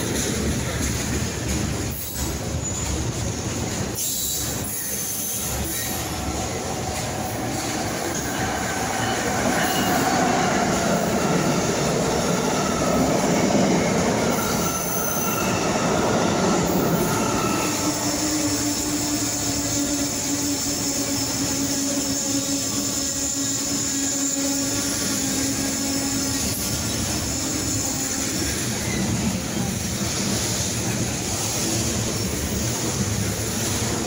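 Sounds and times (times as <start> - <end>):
train wheels rumbling on rail: 0.0 - 34.0
wheel squeals: 1.9 - 13.1, 14.2 - 29.6.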